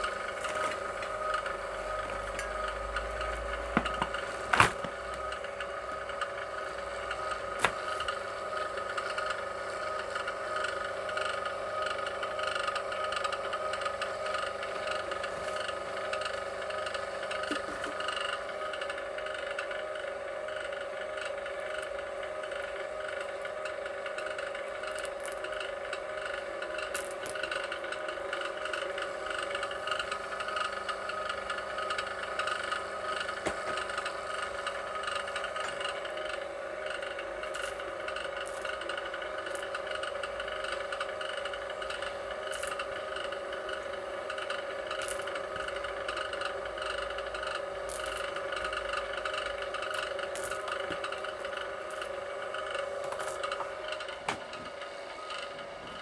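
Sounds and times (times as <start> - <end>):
wire stripping machine whirring: 0.0 - 56.0
wire scraping: 24.2 - 25.8, 26.7 - 28.8, 37.5 - 40.1, 42.5 - 43.0, 44.9 - 45.8, 47.5 - 54.0.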